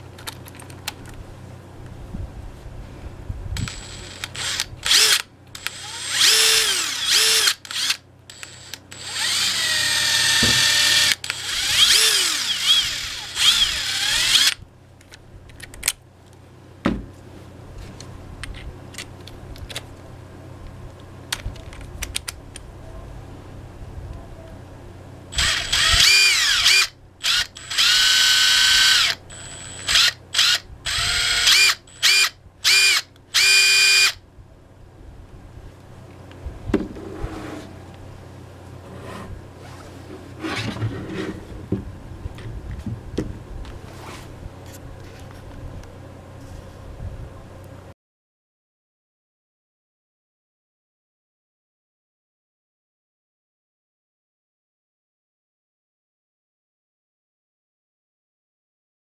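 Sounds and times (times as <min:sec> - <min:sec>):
impact driver motor whirring: 0:03.6 - 0:14.6, 0:25.3 - 0:34.2.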